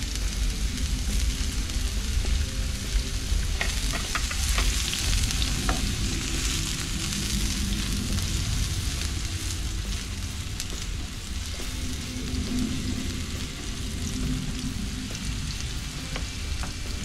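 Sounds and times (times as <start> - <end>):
onion and garlic sizzling in oil: 0.0 - 17.0.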